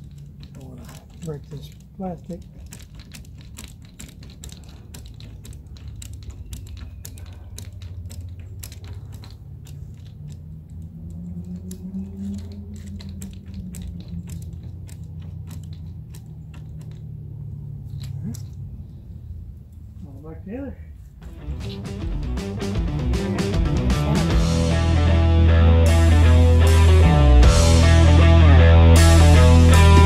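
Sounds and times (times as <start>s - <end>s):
clicks and taps of tools: 0.0s - 17.1s
low hum: 0.0s - 20.1s, 21.0s - 30.0s.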